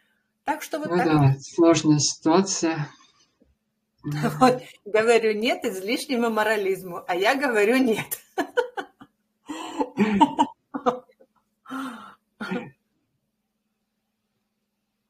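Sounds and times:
person's voice bursts: 0.8 - 1.3, 4.1 - 4.7.

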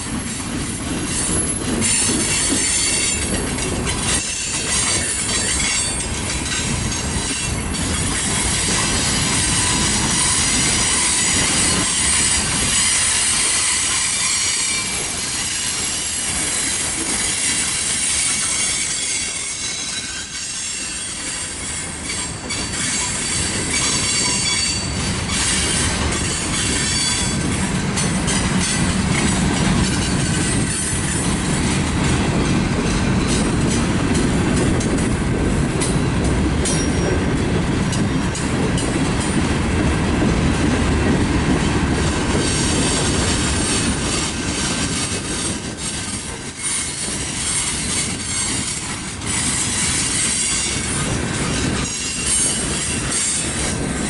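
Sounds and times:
train wheels rumbling on rails: 0.0 - 54.0
high-pitched wheel squeal: 7.1 - 16.8, 17.4 - 27.4.

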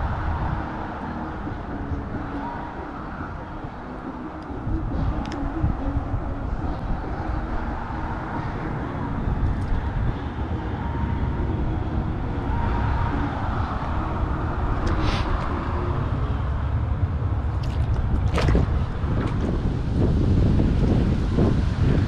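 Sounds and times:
distant engine drone: 0.0 - 22.0
wind rumble on microphone: 0.0 - 22.0
water splashes: 17.4 - 20.2.

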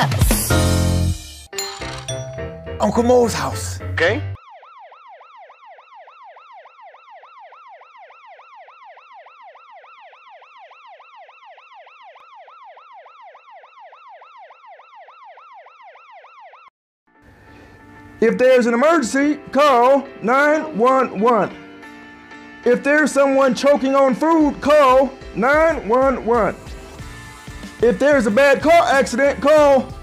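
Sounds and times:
ambulance siren yelping: 4.3 - 16.7, 18.7 - 30.0.

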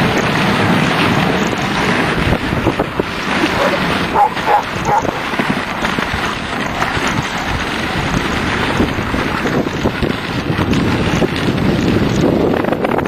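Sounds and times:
sled runners gliding on snow: 0.0 - 13.0
wind buffeting microphone: 0.0 - 13.0.

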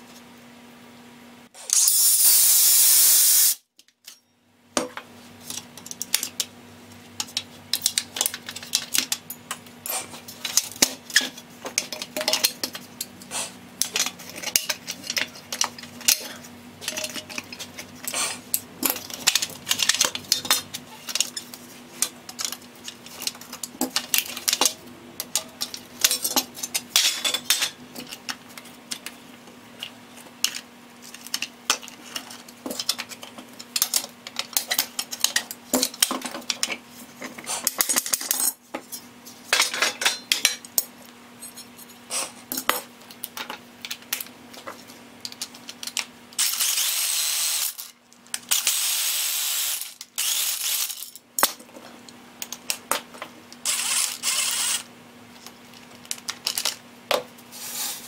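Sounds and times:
metal tools clinking and clanking: 13.8 - 17.9, 18.6 - 28.2.

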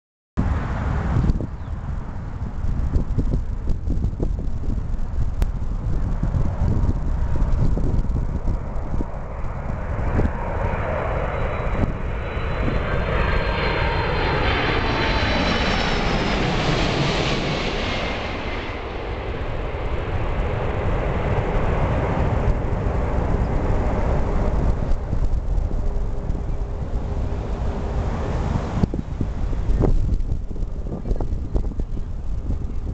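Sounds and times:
jet airliner passing overhead: 0.4 - 32.9.

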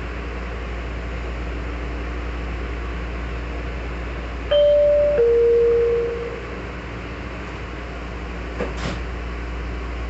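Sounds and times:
train air conditioning hum: 0.0 - 10.0
faint steady tone: 4.5 - 6.5
low drone: 4.5 - 6.7.

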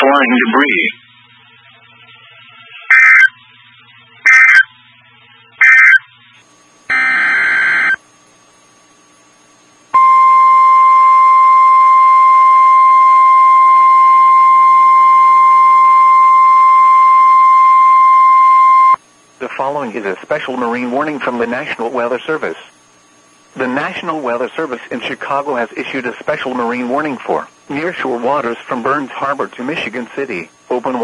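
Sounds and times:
buzzing data bursts: 1.6 - 4.8, 5.4 - 6.1, 6.9 - 8.0
piercing alarm tone: 2.6 - 3.4, 4.2 - 4.7, 5.6 - 6.1, 6.9 - 8.0, 10.0 - 19.0.

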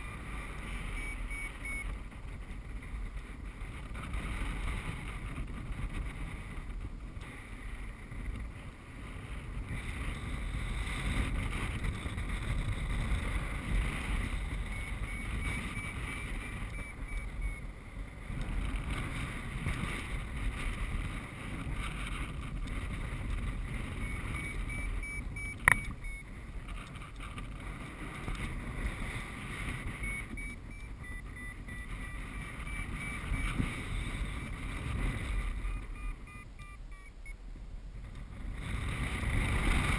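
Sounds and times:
variometer beeping: 0.0 - 2.0, 13.7 - 17.8, 23.6 - 27.2, 29.4 - 37.4
wind buffeting microphone: 0.0 - 37.0, 37.7 - 39.9
sharp click: 25.6 - 26.0.

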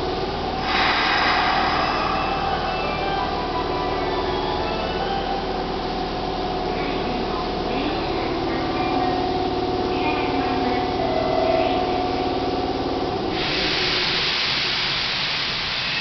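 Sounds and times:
electric train humming: 0.0 - 16.0
public address announcement: 1.5 - 14.4.

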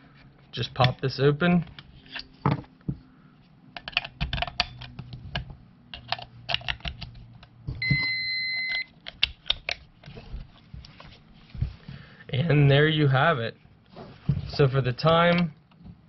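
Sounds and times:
electronic beep: 7.8 - 8.9.

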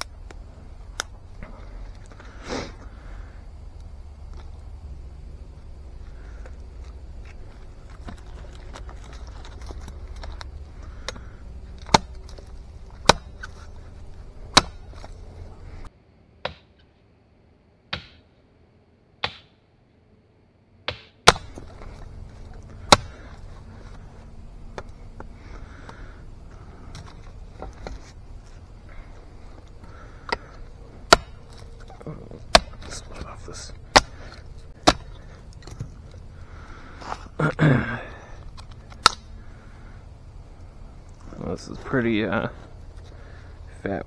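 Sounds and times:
blade chopping wood: 11.0 - 13.5, 14.5 - 15.1, 17.9 - 18.2, 19.2 - 19.5, 20.9 - 21.9, 22.7 - 23.4, 29.9 - 31.6, 32.4 - 36.0, 38.9 - 39.3.

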